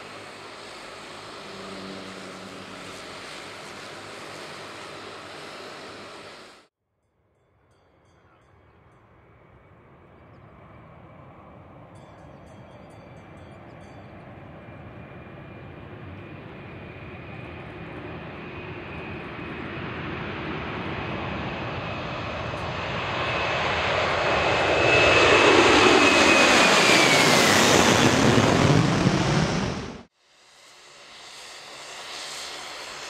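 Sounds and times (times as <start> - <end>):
high engine whine: 0.0 - 6.7
jet engines roaring: 0.0 - 6.7, 14.2 - 33.0.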